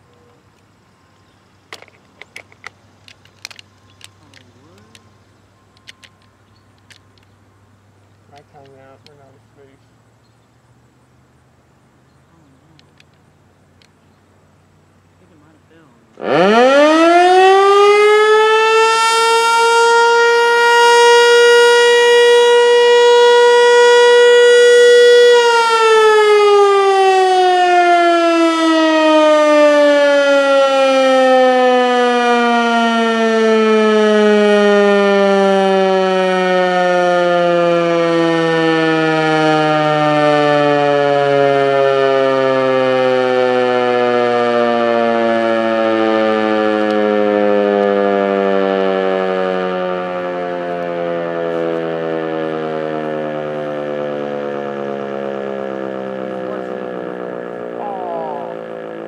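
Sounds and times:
tornado siren wailing: 15.7 - 59.0.

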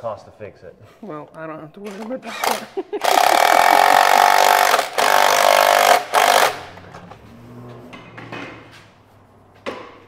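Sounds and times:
cordless power tool whirring: 1.9 - 6.7.

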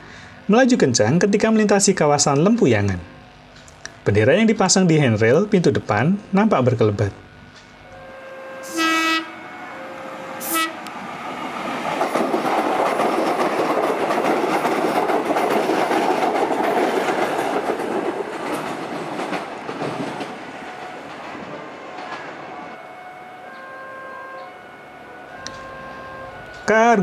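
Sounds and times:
train horn blast: 7.2 - 11.4, 20.6 - 27.0
train wheels clattering on rails: 11.0 - 22.8.

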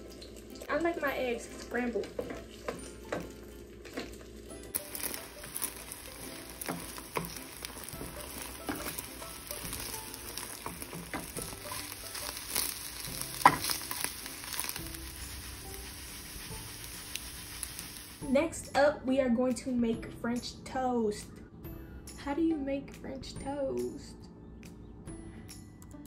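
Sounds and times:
eggs sizzling in a frying pan: 0.0 - 18.5
spatula scraping and tapping pan: 4.8 - 18.1.

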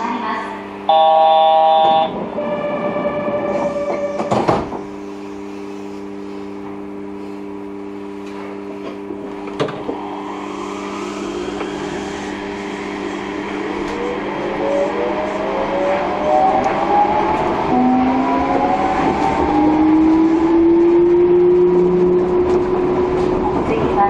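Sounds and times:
station chime: 0.9 - 2.2
train motor whine: 0.9 - 4.8, 9.3 - 20.2
train doors closing knock: 1.7 - 2.1.

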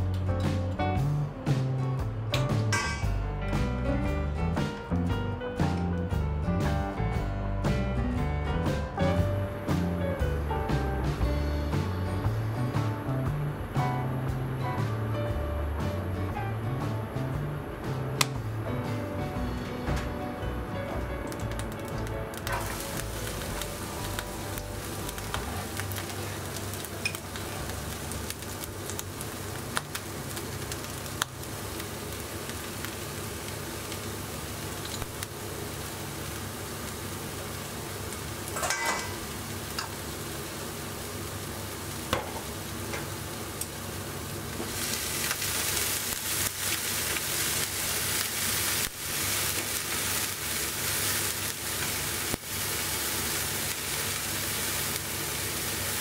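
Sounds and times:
food sizzling in a frying pan: 9.0 - 56.0.

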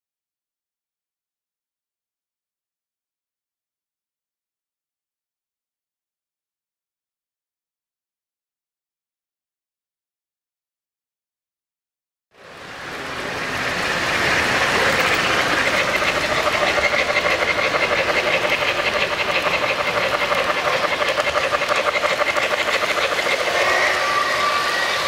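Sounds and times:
model train motor hum: 12.4 - 25.0
wheels clattering on rails: 12.4 - 25.0.

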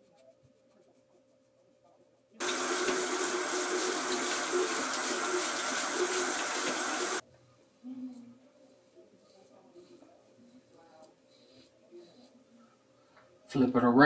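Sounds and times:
faucet running into sink: 2.4 - 7.2.

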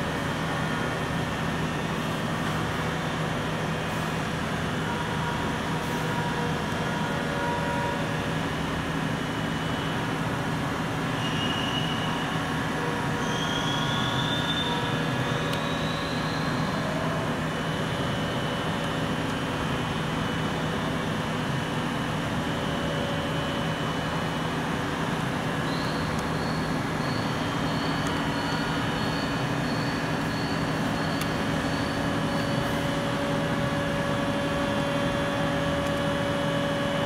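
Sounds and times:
machinery hum and rumble: 0.0 - 37.0
faint high rising squeaks: 11.2 - 17.4, 25.6 - 33.9.

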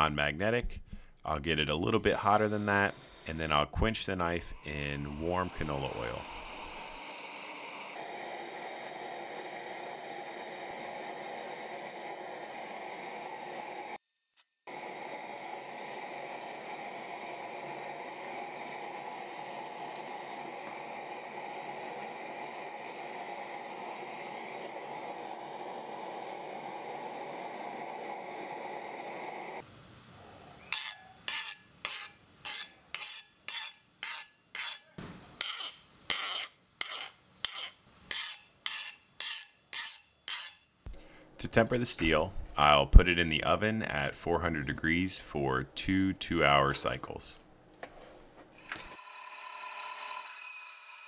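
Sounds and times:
gas torch hissing: 0.8 - 29.6
file rasping on steel blade: 30.7 - 40.7.

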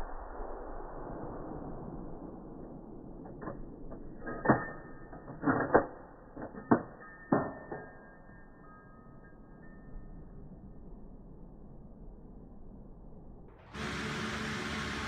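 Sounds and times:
slowed rifle clicks and knocks: 3.2 - 8.9.

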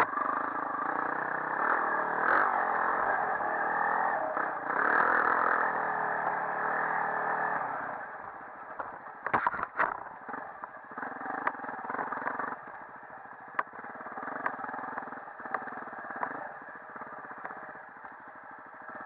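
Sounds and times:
dirt bike engine running: 0.0 - 19.0
sharp knocks and rattles: 8.8 - 10.8.

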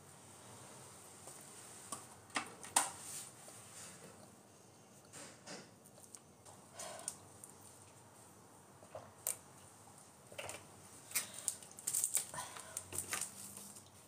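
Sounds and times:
plastic bottle clicking and crinkling: 10.4 - 13.9.

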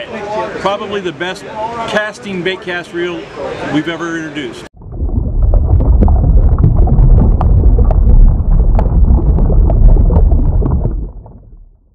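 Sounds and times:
clicks and pops: 4.8 - 11.9
deep rumbling: 4.8 - 11.9.

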